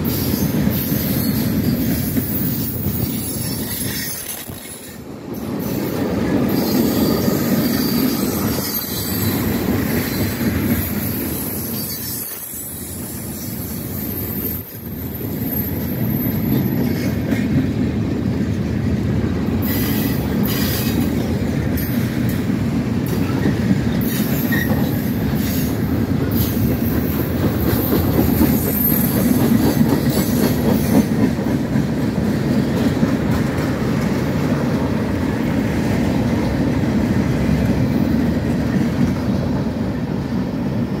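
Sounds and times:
high wheel squeal: 0.0 - 5.0, 6.5 - 17.0, 19.6 - 21.1, 23.3 - 27.2, 27.8 - 30.6
train wheels rumbling on rails: 0.0 - 41.0.

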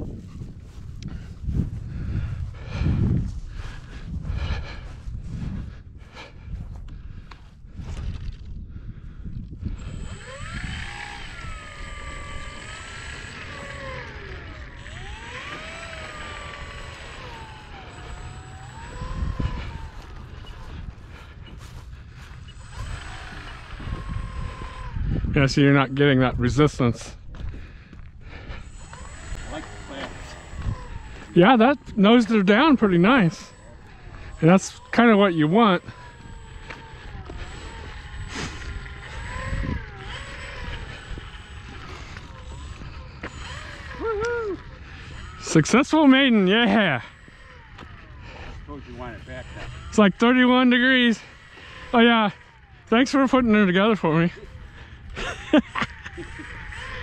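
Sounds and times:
wind rumble on microphone: 0.0 - 32.0, 36.1 - 45.4
electric motor and propeller whining: 0.0 - 57.0.

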